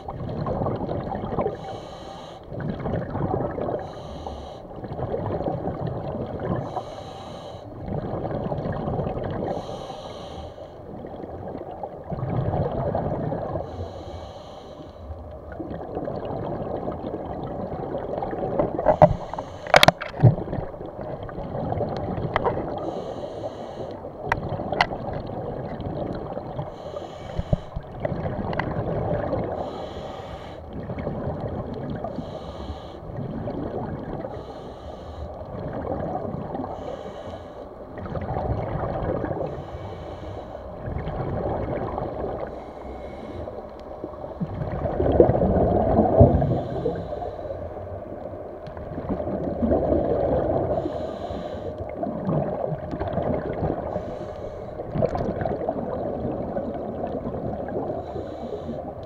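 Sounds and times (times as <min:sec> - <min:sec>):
water bubbling: 0:00.0 - 0:01.9, 0:02.5 - 0:04.1, 0:04.7 - 0:06.9, 0:07.7 - 0:09.8, 0:10.8 - 0:13.8, 0:15.3 - 0:34.8, 0:35.5 - 0:47.4, 0:48.0 - 0:59.0
swimmer breathing: 0:01.5 - 0:02.5, 0:03.8 - 0:04.7, 0:06.6 - 0:07.8, 0:09.5 - 0:10.9, 0:13.6 - 0:15.2, 0:18.8 - 0:20.1, 0:22.6 - 0:24.1, 0:26.6 - 0:28.0, 0:29.5 - 0:30.7, 0:32.1 - 0:33.2, 0:34.2 - 0:35.5, 0:36.6 - 0:37.9, 0:39.4 - 0:40.8, 0:42.4 - 0:44.0, 0:46.4 - 0:48.1, 0:50.7 - 0:51.9, 0:53.8 - 0:55.0, 0:58.0 - 0:59.0.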